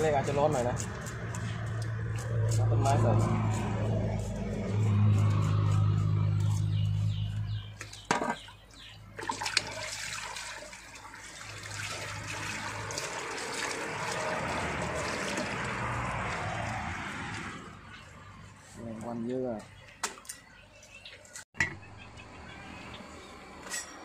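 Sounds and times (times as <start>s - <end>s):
tap water splashing into basin: 9.2s - 16.8s.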